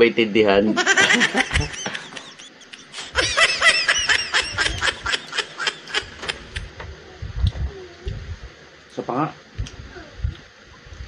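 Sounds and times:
high-pitched giggling: 0.7s - 6.8s.

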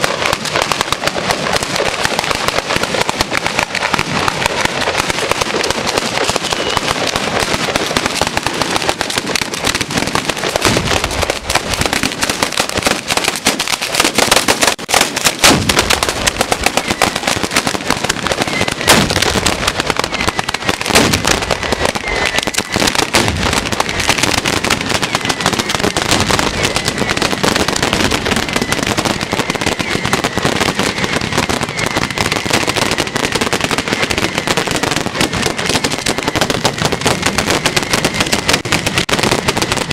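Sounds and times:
firecrackers crackling: 0.0s - 39.9s
heavier firecracker bangs: 0.0s - 39.9s.

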